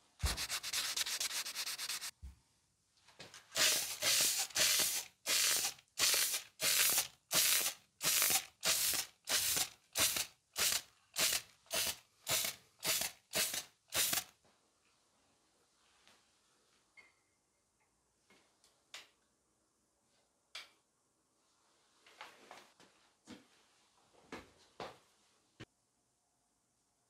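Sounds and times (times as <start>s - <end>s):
sandpaper rubbing on metal: 0.2s - 2.1s, 3.6s - 14.2s
spray paint hissing: 0.2s - 2.1s, 3.6s - 14.3s.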